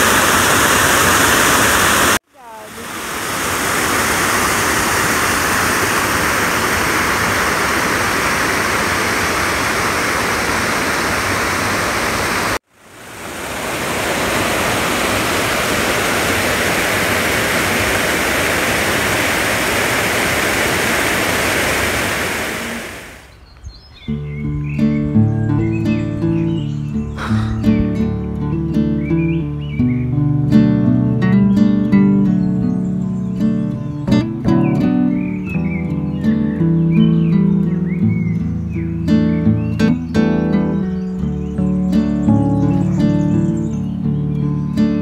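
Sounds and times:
waterfall roaring: 0:00.0 - 0:23.4.

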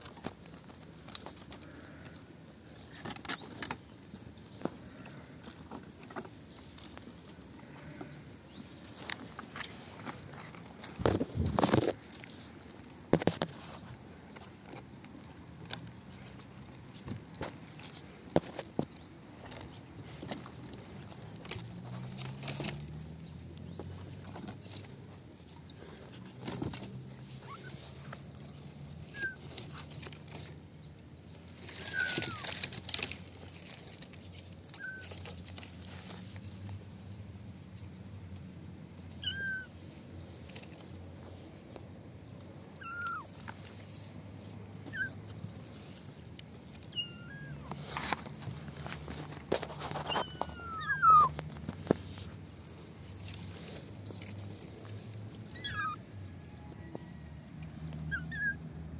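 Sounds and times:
rustling and handling noise: 0:00.0 - 0:58.9
kittens mewing: 0:31.7 - 0:32.6, 0:39.1 - 0:39.8, 0:42.7 - 0:43.4, 0:44.8 - 0:45.2, 0:46.8 - 0:47.8, 0:49.8 - 0:51.4, 0:55.4 - 0:56.1, 0:58.1 - 0:58.7.

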